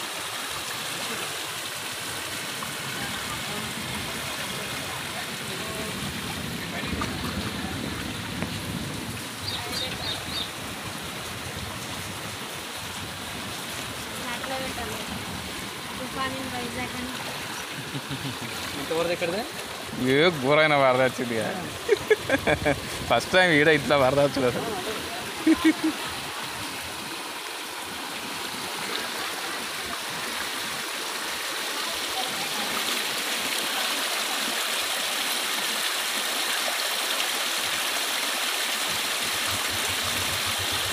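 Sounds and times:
floodwater rushing: 0:00.0 - 0:40.9.

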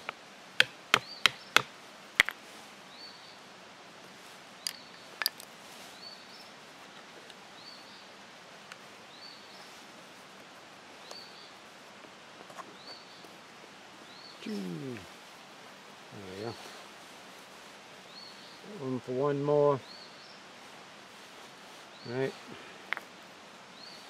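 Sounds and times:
bird chirping: 0:00.9 - 0:01.6.

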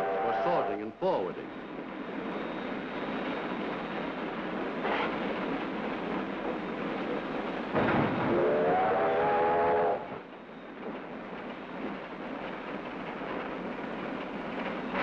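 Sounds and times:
steam locomotive running: 0:00.0 - 0:15.0
steam whistle blast: 0:08.3 - 0:10.1.

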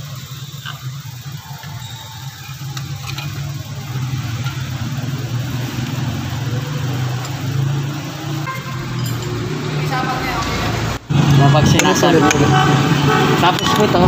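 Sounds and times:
faint metal clinks: 0:08.9 - 0:09.5.

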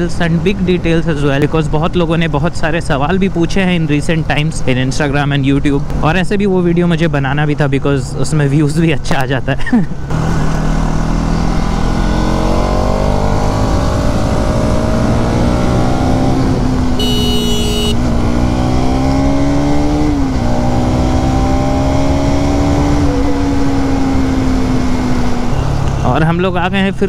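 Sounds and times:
motorcycle engine accelerating: 0:10.1 - 0:26.0
brief high tone: 0:17.0 - 0:18.0.

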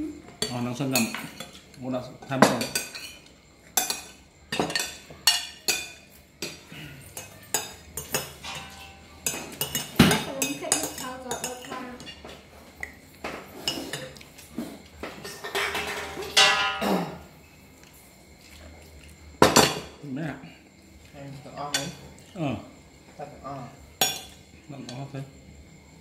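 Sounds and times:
spoons clinking on ceramic plates: 0:00.4 - 0:12.4, 0:13.2 - 0:14.4, 0:15.0 - 0:16.8, 0:24.0 - 0:25.0.

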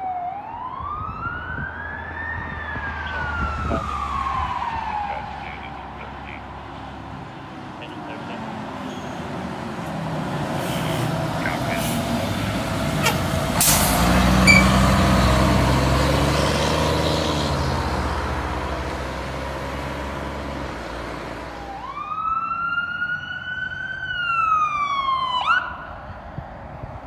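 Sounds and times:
electronic siren wailing: 0:00.0 - 0:06.6
fire engine diesel rumbling: 0:00.0 - 0:27.0.

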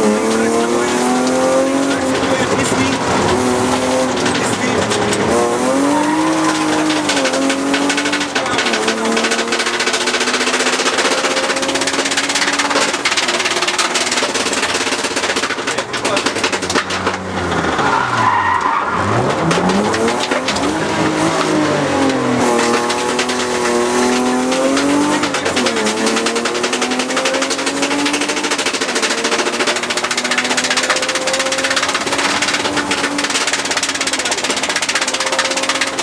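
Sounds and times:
car engine revving: 0:00.0 - 0:36.0
tyre squeal: 0:17.4 - 0:19.9.

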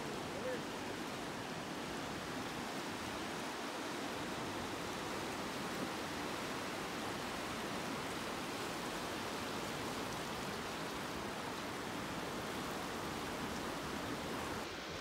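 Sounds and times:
river rushing over rocks: 0:00.0 - 0:15.0.

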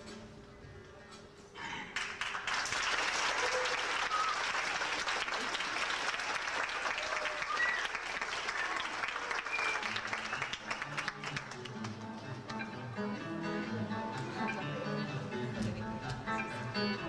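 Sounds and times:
audience applauding: 0:01.9 - 0:12.0
audience cheers: 0:06.6 - 0:10.4.

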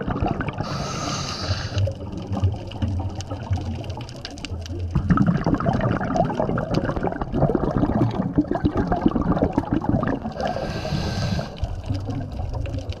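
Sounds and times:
exhaled bubbles gurgling: 0:00.0 - 0:13.0
regulator inhale hiss: 0:00.6 - 0:01.9, 0:10.4 - 0:11.8.

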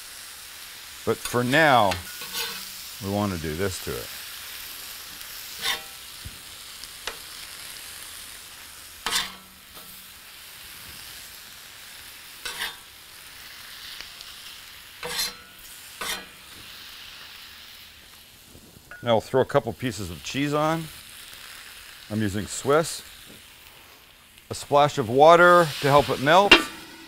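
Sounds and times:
meat sizzling on a griddle: 0:00.0 - 0:27.0
metal spatula scraping steel: 0:01.2 - 0:02.8, 0:05.5 - 0:06.0, 0:09.0 - 0:10.0, 0:12.4 - 0:12.9, 0:15.0 - 0:16.4, 0:25.7 - 0:27.0.

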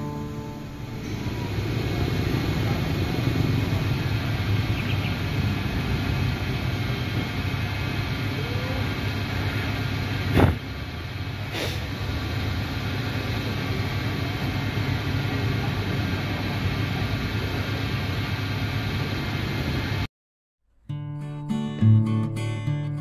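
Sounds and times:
car engine rumbling: 0:00.0 - 0:20.0.

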